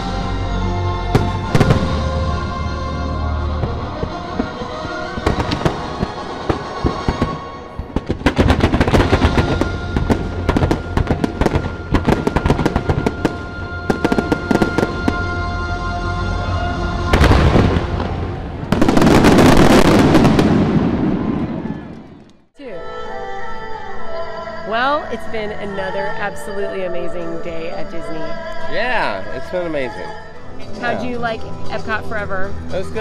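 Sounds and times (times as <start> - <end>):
music: 0.0 - 19.5, 22.6 - 33.0
fireworks bursting and crackling: 3.6 - 15.2, 17.1 - 22.3.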